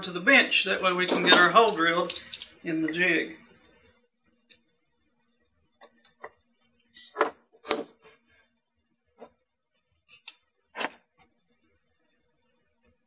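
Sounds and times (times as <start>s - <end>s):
metal clamps clicking: 1.1s - 2.6s.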